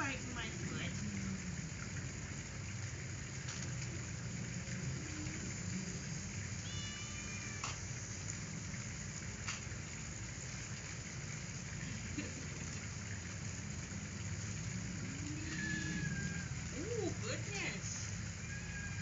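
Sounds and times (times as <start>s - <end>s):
low hum: 0.0s - 19.0s
steady hiss: 0.0s - 19.0s
faint clicks: 7.6s - 7.9s.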